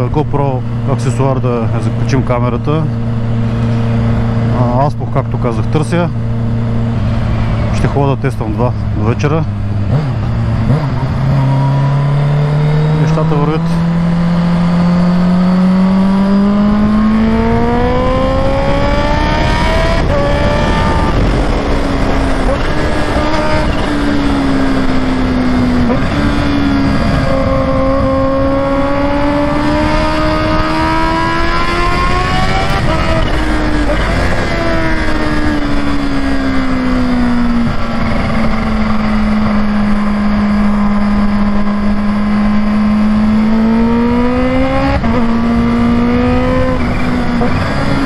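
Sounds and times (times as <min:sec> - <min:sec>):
gear changes: 0:00.0 - 0:48.0
motorcycle engine revving: 0:00.0 - 0:48.0
wind noise: 0:13.8 - 0:48.0.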